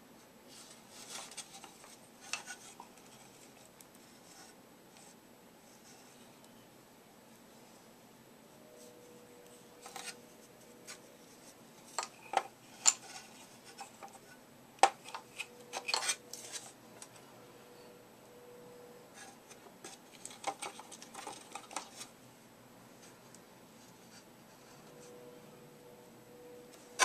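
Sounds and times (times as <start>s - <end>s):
plastic parts clicking and tapping: 11.9s - 14.2s, 14.8s - 16.4s, 19.5s - 22.1s.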